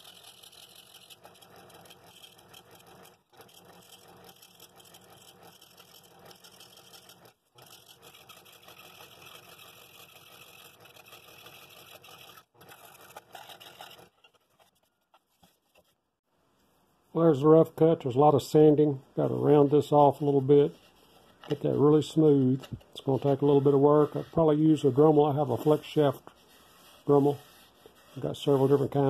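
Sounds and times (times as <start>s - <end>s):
scroll saw cutting wood: 0.0s - 14.6s, 21.5s - 29.0s.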